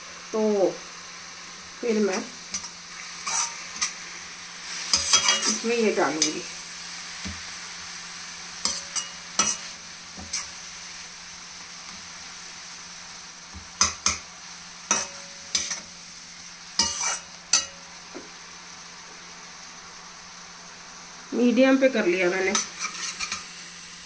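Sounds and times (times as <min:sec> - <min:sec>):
leaves sizzling in oil: 0:00.0 - 0:24.0
skimmer scraping metal pan: 0:02.6 - 0:03.9, 0:04.9 - 0:06.4.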